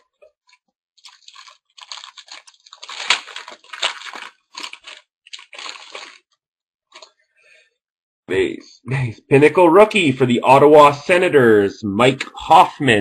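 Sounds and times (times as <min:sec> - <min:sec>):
wrapper crinkling and tearing: 0:00.5 - 0:06.3.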